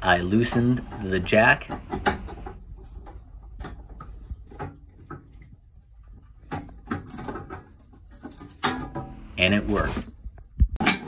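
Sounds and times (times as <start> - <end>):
vehicle jack clicking and knocking: 0.3 - 5.3.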